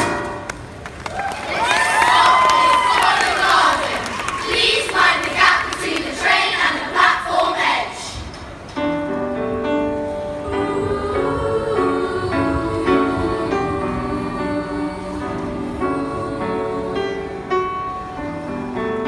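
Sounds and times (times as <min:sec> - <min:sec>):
children shouting: 0:01.1 - 0:05.7.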